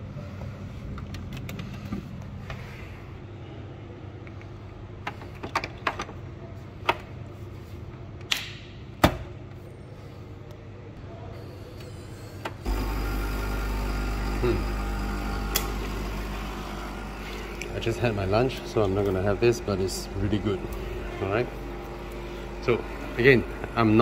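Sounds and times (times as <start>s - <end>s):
coffee machine pump humming: 11.6s - 24.0s.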